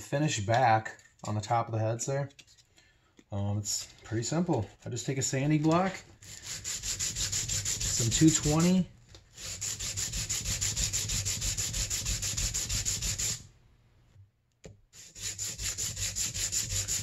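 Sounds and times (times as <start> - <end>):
sandpaper scraping metal: 5.5 - 8.8, 9.4 - 13.4, 15.0 - 17.0.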